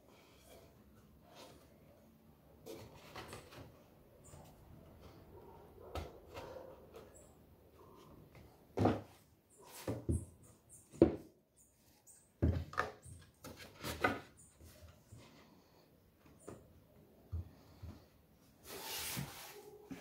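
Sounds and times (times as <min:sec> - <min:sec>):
wooden boards knocking and scraping: 0:08.7 - 0:09.2, 0:10.9 - 0:11.3.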